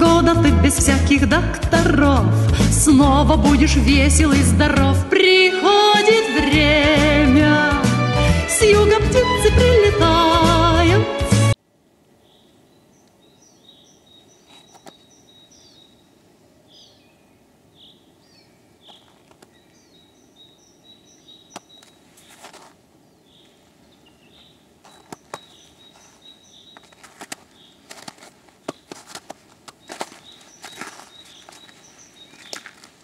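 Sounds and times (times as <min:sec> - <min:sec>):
faint outdoor background noise: 0:11.1 - 0:33.0
small songbirds calling: 0:12.2 - 0:29.0, 0:29.7 - 0:33.0
footsteps crunching on snow: 0:14.4 - 0:15.2, 0:21.5 - 0:33.0.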